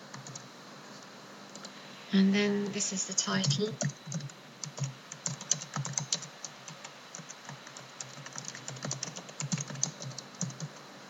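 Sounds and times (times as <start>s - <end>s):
keyboard typing: 0.1s - 0.5s, 3.2s - 10.8s.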